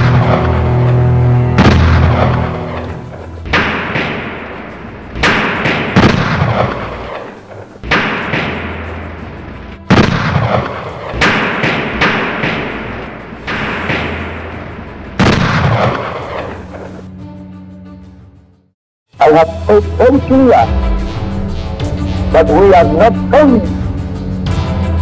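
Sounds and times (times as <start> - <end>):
echoing gunshots: 0.0 - 17.0
low music drone: 0.0 - 18.5, 19.2 - 25.0.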